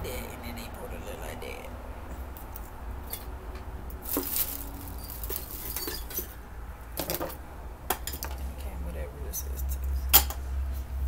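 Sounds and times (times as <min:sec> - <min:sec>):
plastic packaging crinkling: 0:04.0 - 0:06.2.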